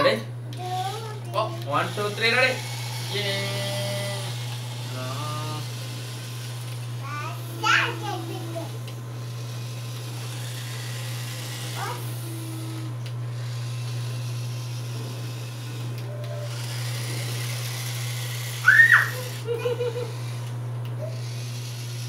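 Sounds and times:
steady low hum: 0.0s - 22.0s
toy car electric motors whirring: 0.0s - 22.0s
loud squeal: 18.6s - 19.2s.

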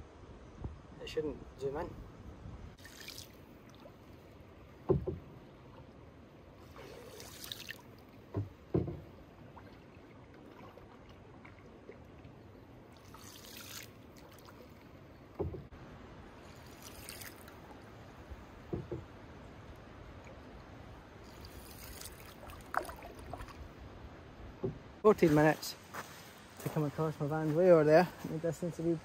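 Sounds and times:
paddle swishing water: 2.7s - 15.8s, 16.4s - 28.4s
paddle knocking against canoe: 4.7s - 5.6s, 8.2s - 9.4s, 15.3s - 15.8s, 18.6s - 19.2s, 24.5s - 24.9s.

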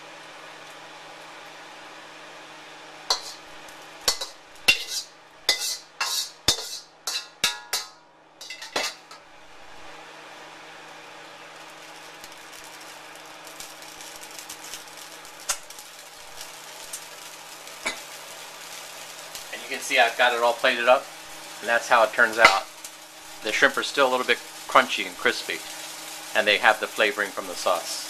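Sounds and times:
faint sizzle with crackles: 0.0s - 28.0s
metal spatula clanking on wok: 3.1s - 3.4s, 4.0s - 9.2s, 22.4s - 22.7s.

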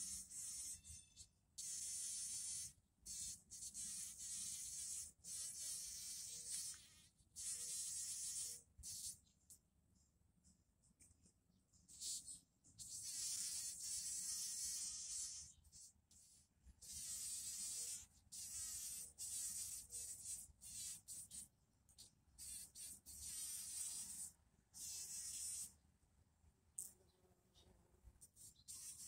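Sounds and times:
bumblebee buzzing: 0.0s - 0.8s, 1.6s - 9.2s, 11.9s - 15.5s, 16.8s - 21.4s, 22.4s - 25.7s, 28.4s - 29.0s.

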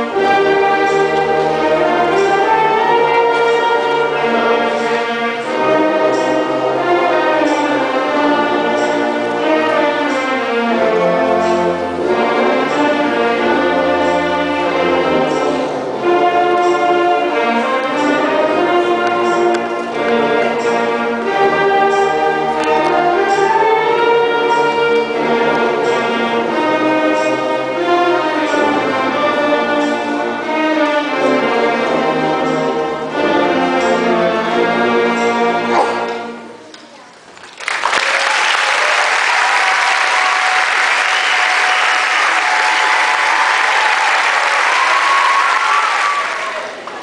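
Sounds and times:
audience applauding: 36.7s - 47.0s.

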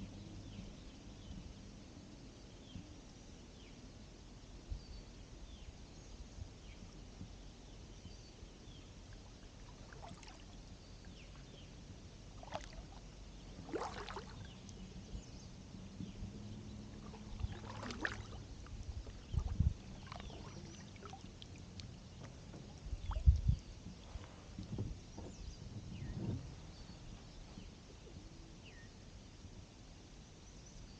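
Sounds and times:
paddle splashing and dripping: 9.1s - 11.6s, 12.2s - 15.0s, 16.8s - 25.4s
low thumps: 24.5s - 26.8s.

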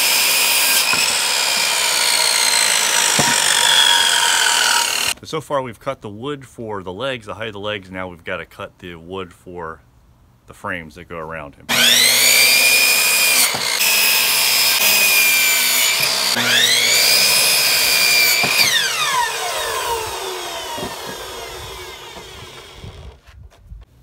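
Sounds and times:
miter saw cutting wood: 0.0s - 5.2s, 11.7s - 23.2s
saw blade winding down: 0.0s - 5.2s, 11.7s - 23.2s.

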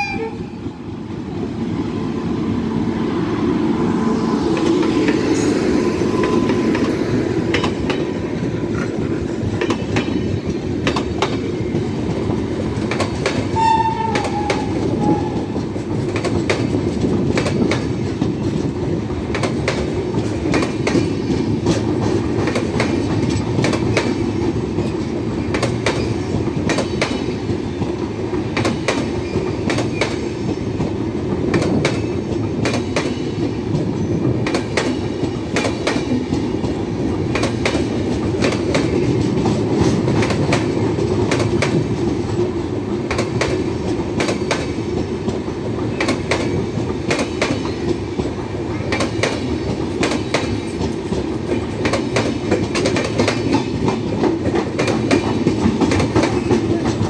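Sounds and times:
train wheels rumbling: 0.0s - 57.0s
wheels clicking over rail joints: 31.5s - 57.0s.

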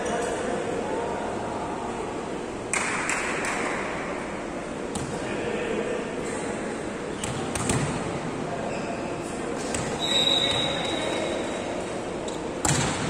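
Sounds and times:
crowd noise: 0.0s - 13.0s
volleyball being hit: 7.2s - 8.0s, 12.6s - 13.0s.

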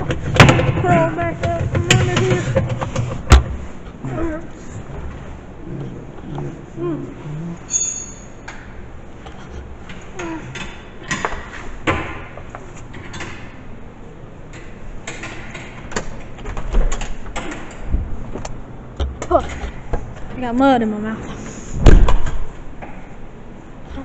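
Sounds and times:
high squeak: 7.7s - 8.4s.

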